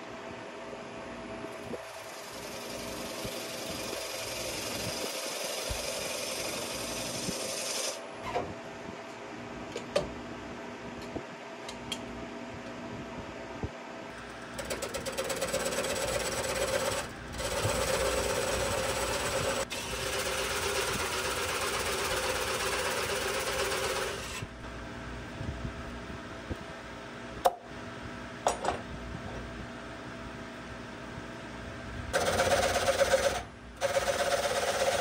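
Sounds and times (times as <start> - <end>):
wood lathe cutting a bowl: 1.9 - 8.0, 14.2 - 24.4, 32.2 - 35.0.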